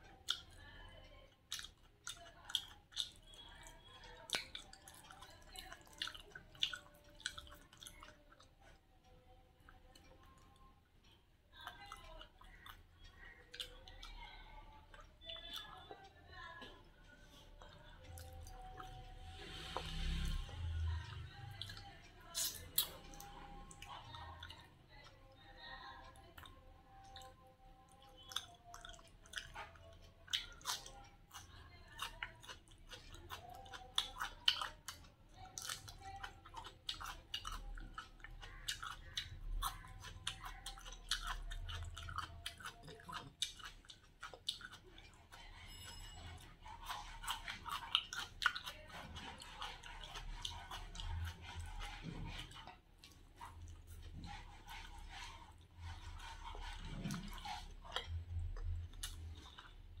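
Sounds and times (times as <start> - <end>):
chewing and biting: 0.0 - 10.7, 11.6 - 60.0
wet mouth clicks: 17.6 - 25.4, 26.1 - 45.8.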